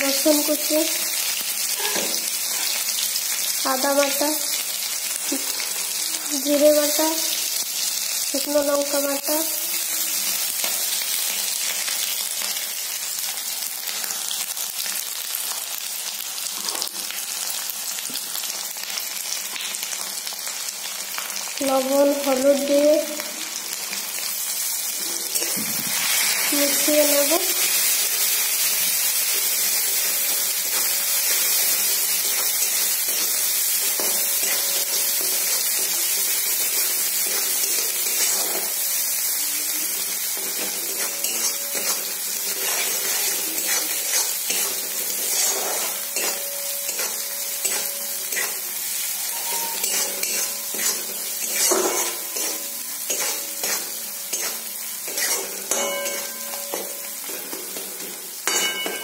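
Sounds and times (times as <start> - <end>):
onion sizzling in hot oil: 0.0 - 59.0
spatula scraping and knocking pan: 40.4 - 48.6, 49.4 - 59.0.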